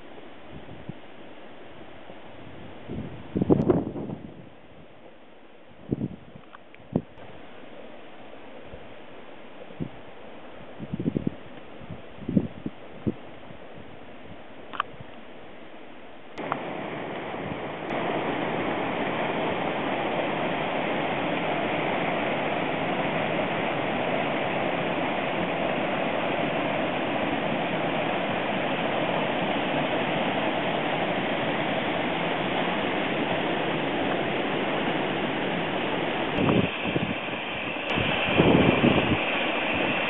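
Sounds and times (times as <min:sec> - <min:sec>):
hot springs water hissing: 0:16.3 - 0:40.0.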